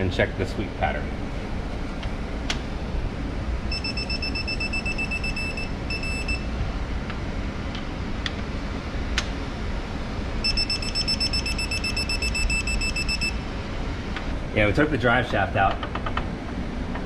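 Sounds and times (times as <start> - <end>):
torque wrench high-pitched beeping: 3.7 - 6.5, 10.4 - 13.4.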